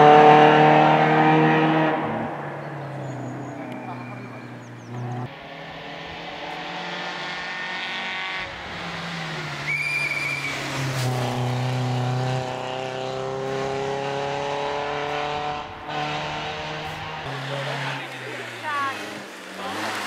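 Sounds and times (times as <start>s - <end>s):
rally car engine revving: 0.0s - 20.0s
tyre squeal: 9.6s - 11.4s.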